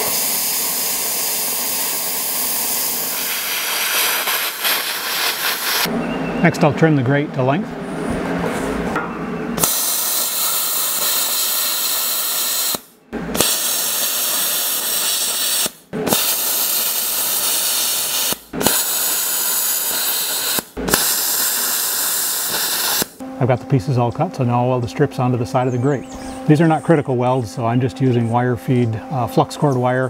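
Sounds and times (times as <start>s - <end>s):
plasma cutter hissing: 0.0s - 5.9s, 9.6s - 23.2s.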